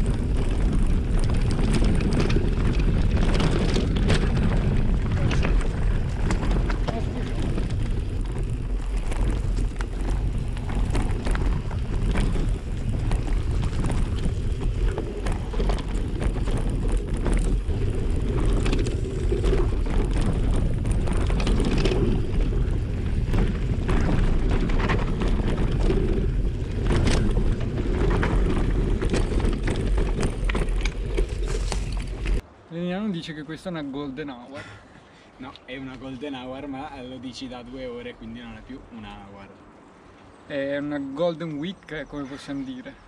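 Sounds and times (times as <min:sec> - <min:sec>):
bike clicks and rattles: 0:00.0 - 0:32.4
bike tyres crunching over gravel: 0:00.0 - 0:32.4
wind rumble on microphone: 0:00.0 - 0:32.5.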